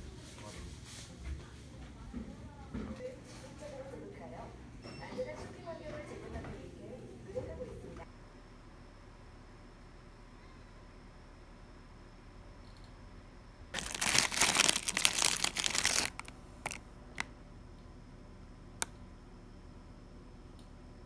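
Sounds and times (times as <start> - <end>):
foil snack bag crinkling: 13.8 - 16.8.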